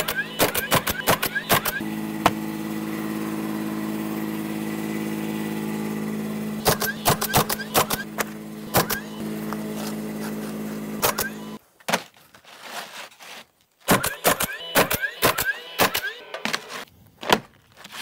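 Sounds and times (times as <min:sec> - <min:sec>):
motor humming: 0:00.0 - 0:11.6.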